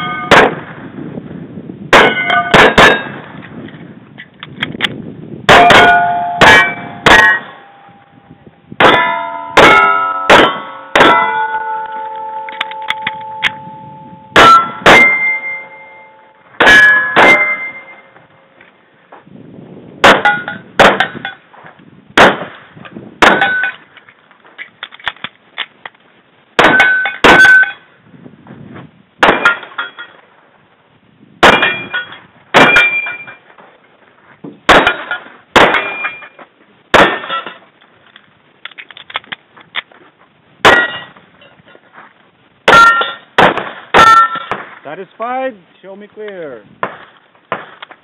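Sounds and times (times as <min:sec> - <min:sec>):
steel targets clanging: 0:00.0 - 0:00.6, 0:02.0 - 0:03.2, 0:05.5 - 0:08.2, 0:08.8 - 0:18.6, 0:20.0 - 0:21.5, 0:23.2 - 0:24.0, 0:26.6 - 0:27.9, 0:29.2 - 0:30.2, 0:31.4 - 0:33.7, 0:34.7 - 0:37.8, 0:40.6 - 0:41.9, 0:42.7 - 0:45.0
pistol shots: 0:00.3 - 0:00.7, 0:01.9 - 0:03.3, 0:08.8 - 0:12.0, 0:20.0 - 0:21.2, 0:22.2 - 0:22.6, 0:23.2 - 0:23.7, 0:29.2 - 0:29.7, 0:31.4 - 0:31.9, 0:32.5 - 0:33.2, 0:34.7 - 0:36.2, 0:36.9 - 0:37.5, 0:42.7 - 0:44.8, 0:46.8 - 0:47.9.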